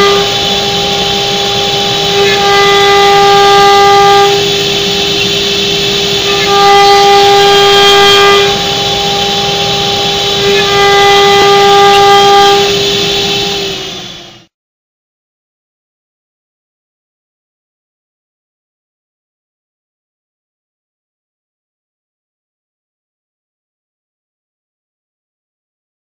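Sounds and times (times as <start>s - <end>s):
louder higher tone: 0.0s - 14.2s
router spindle whining: 0.0s - 14.5s.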